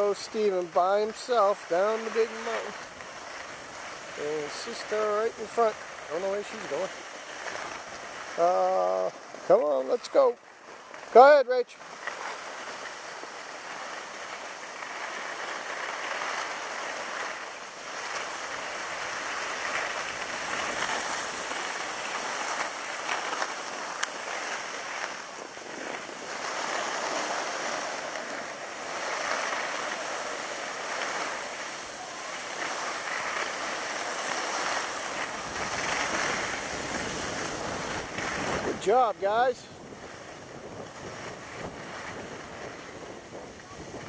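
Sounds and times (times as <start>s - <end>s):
skis scraping over snow: 0.0s - 44.0s
wind on microphone: 34.8s - 44.0s.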